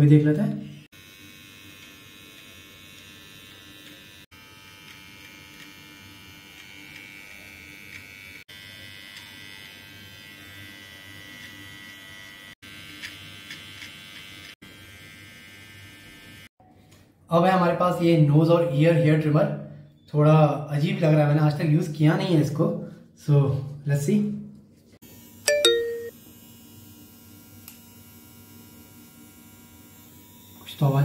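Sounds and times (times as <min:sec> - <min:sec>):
electric trimmer buzzing: 0:00.7 - 0:16.5, 0:25.0 - 0:31.0.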